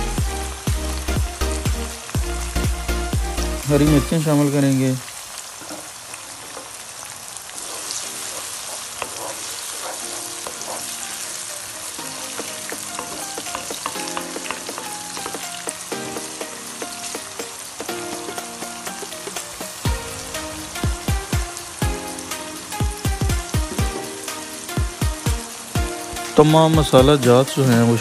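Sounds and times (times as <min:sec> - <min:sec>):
vegetables sizzling in hot oil: 0:00.0 - 0:28.0
wooden spoon scraping pan: 0:07.6 - 0:11.1.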